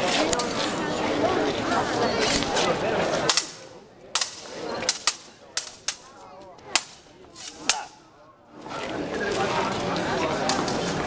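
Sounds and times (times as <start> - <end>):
swords clashing: 3.3 - 6.0, 6.7 - 8.0.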